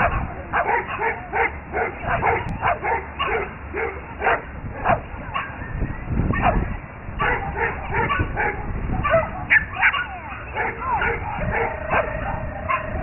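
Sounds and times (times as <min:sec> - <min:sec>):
small dog yapping: 0:06.3 - 0:12.1.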